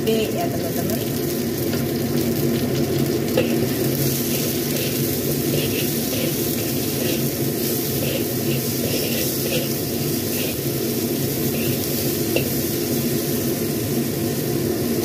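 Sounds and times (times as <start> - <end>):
vegetables sizzling in hot oil: 0.0 - 15.0
metal spatula scraping wok: 3.4 - 13.4.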